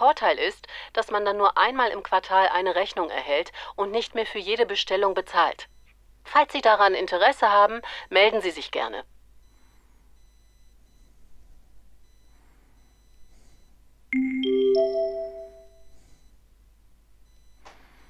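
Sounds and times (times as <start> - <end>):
three-note rising chime: 14.2 - 15.8.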